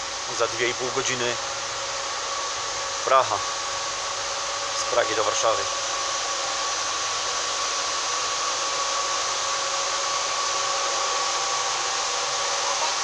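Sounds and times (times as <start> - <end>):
train machinery whining hum: 0.0 - 13.0.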